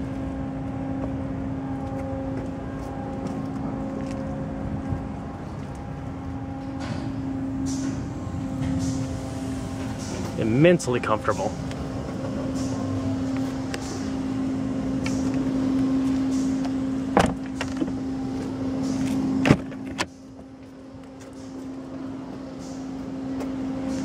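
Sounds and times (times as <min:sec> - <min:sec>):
steady hum: 0:00.0 - 0:24.0
car doors clunking: 0:15.0 - 0:21.4.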